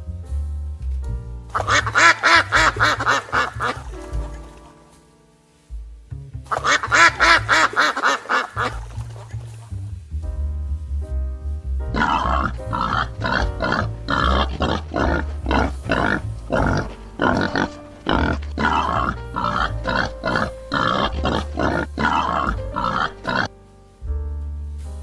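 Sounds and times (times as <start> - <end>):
background music: 0.0 - 25.0
boar grunting: 1.6 - 4.0, 6.5 - 9.4, 11.9 - 23.5.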